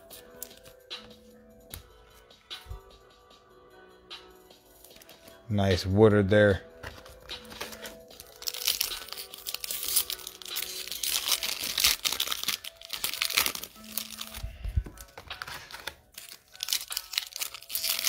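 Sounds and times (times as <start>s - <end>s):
foil wrapper crinkling and tearing: 7.4s - 18.0s.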